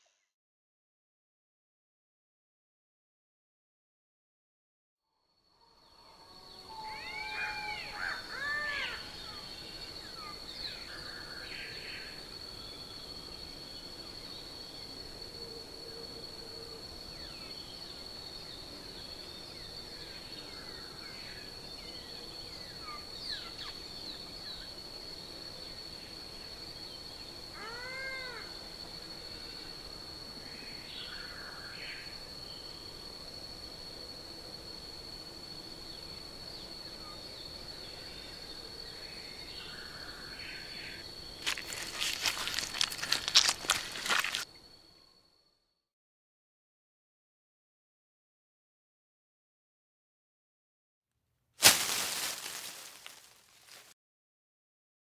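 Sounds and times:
high-pitched insect drone: 0:05.2 - 0:45.6
meow-like call: 0:06.7 - 0:09.0, 0:27.6 - 0:28.6.

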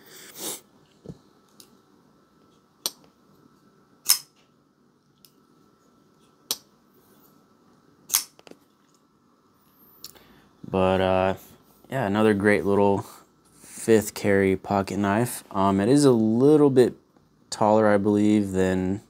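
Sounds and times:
folding knife blade clicks: 0:04.0 - 0:04.3.

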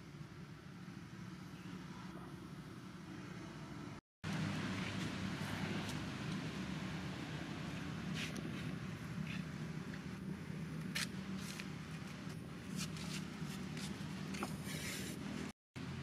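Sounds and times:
light scuffs and rustles: 0:07.7 - 0:10.1, 0:10.8 - 0:15.2.

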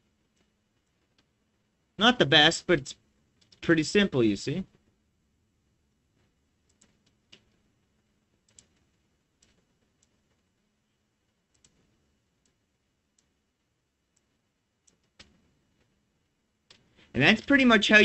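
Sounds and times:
computer mouse clicks: 0:06.6 - 0:07.6, 0:08.4 - 0:10.4, 0:11.5 - 0:12.6, 0:14.1 - 0:15.9.

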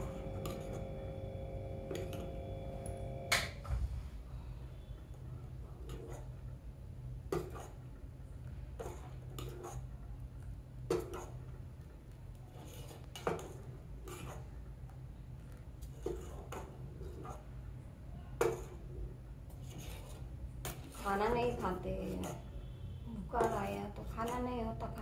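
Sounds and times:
spoon scraping steel saucepan: 0:00.0 - 0:00.9
steady low hum: 0:00.0 - 0:10.7.

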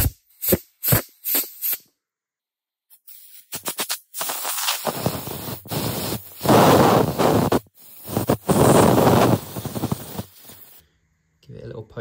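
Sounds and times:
aerosol spray can hissing: 0:00.0 - 0:01.9, 0:03.0 - 0:10.8.

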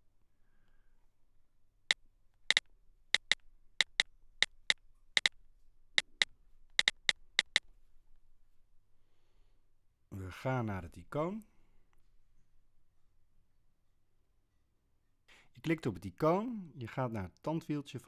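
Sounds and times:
on-screen keyboard clicks: 0:02.5 - 0:05.4, 0:06.0 - 0:07.6.

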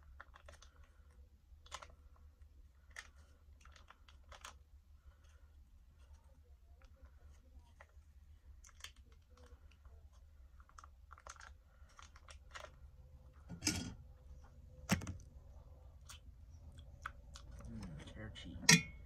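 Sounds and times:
food pouch crinkling: 0:00.0 - 0:00.9, 0:01.6 - 0:02.0, 0:02.8 - 0:04.6, 0:08.6 - 0:12.8.

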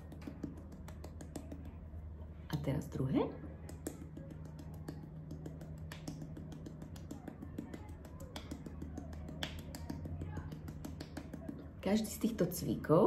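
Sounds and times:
fingertips tapping on cheek: 0:00.0 - 0:01.8, 0:03.4 - 0:11.8.

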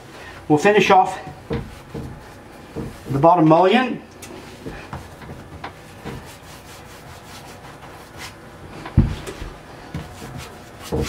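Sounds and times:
dull thump: 0:01.3 - 0:03.2, 0:08.8 - 0:11.0
paintbrush rubbing on wood: 0:05.1 - 0:08.4, 0:09.9 - 0:11.0.

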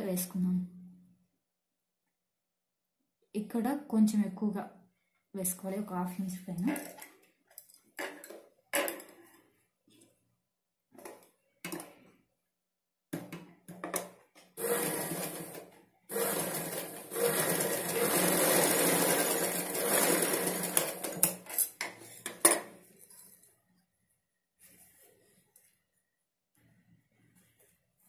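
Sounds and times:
sewing machine stitching: 0:14.6 - 0:21.6.

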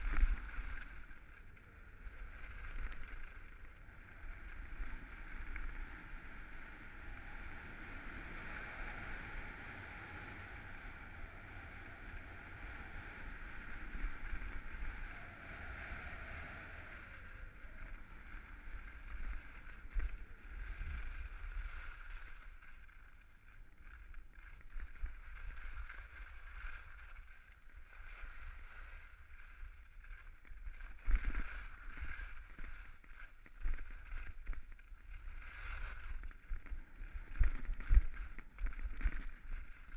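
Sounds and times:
wind on microphone: 0:00.0 - 0:01.1, 0:03.8 - 0:23.0, 0:23.9 - 0:39.9
skis scraping over snow: 0:00.0 - 0:39.9.

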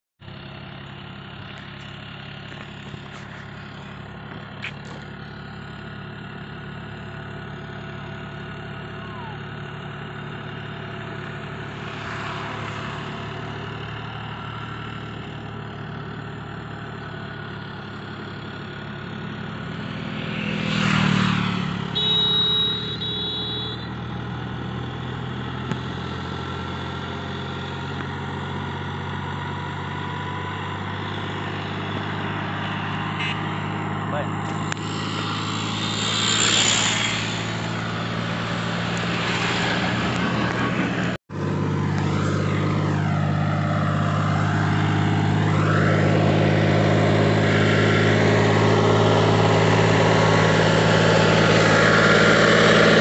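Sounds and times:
tractor diesel engine running: 0:00.2 - 0:53.0
vehicle passing: 0:08.5 - 0:53.0
horn sounding: 0:20.8 - 0:24.2.

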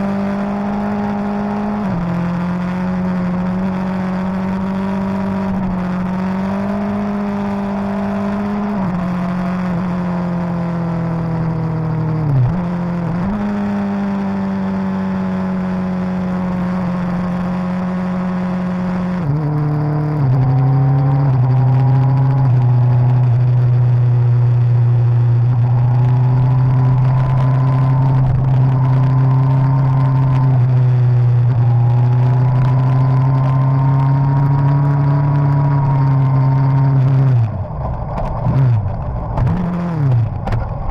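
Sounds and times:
motorcycle engine running: 0:14.4 - 0:40.9.

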